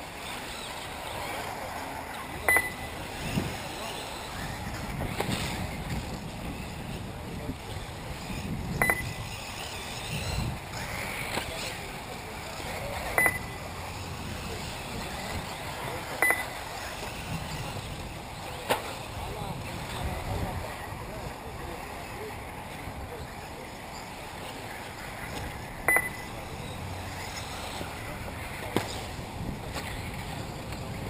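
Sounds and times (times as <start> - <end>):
rc car motor and tyre noise: 0.0 - 31.0
high electronic beeps: 2.4 - 2.9, 8.8 - 9.2, 13.2 - 13.6, 16.2 - 16.6, 25.9 - 26.3
wind noise: 2.8 - 12.2, 16.7 - 21.8, 27.3 - 31.0.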